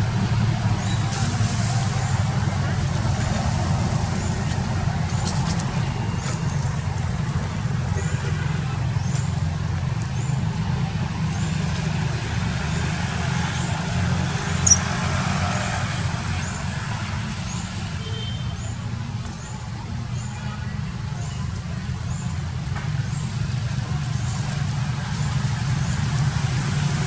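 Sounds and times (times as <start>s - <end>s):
low outdoor rumble: 0.0s - 27.0s
faint high chirp: 14.6s - 14.9s.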